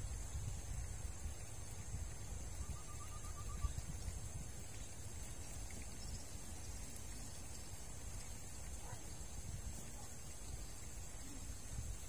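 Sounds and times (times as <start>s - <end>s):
moving water: 0.0s - 12.0s
wind rumble: 0.0s - 12.0s
bird trill: 2.6s - 3.8s.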